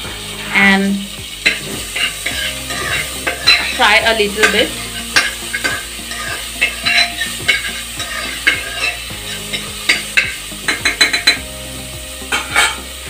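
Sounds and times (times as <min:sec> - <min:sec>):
food sizzling in oil: 0:00.0 - 0:13.0
spoon scraping metal pot: 0:01.4 - 0:11.4, 0:12.3 - 0:12.8
spoon tapping pot: 0:01.4 - 0:11.4.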